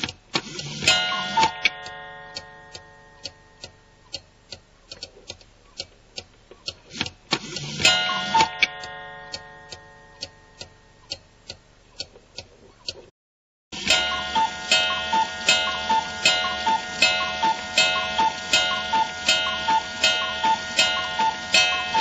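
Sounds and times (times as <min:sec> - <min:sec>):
clock ticking: 0:00.0 - 0:13.1, 0:13.8 - 0:22.0
ringing chord: 0:13.8 - 0:22.0.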